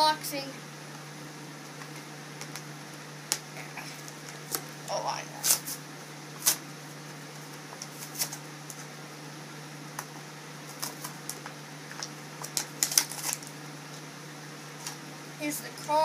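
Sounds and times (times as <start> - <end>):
steady low hum: 0.0 - 16.0
plastic packaging crinkling: 10.7 - 13.6.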